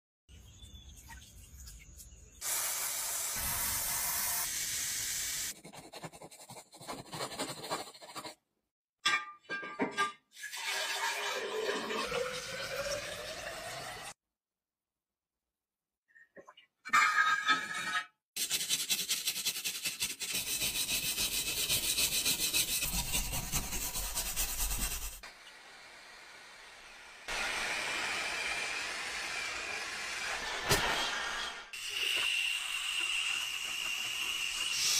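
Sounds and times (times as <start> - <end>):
hiss of foam spray: 2.4 - 5.6, 23.7 - 34.9.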